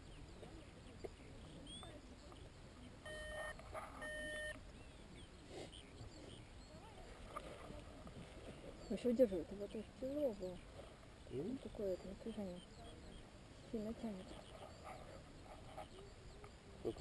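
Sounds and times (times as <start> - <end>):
electronic beeps: 3.0 - 4.6.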